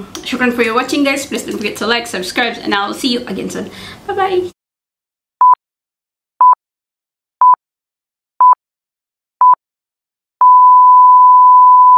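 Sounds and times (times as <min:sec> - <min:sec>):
long steady beep: 0:10.4 - 0:11.9.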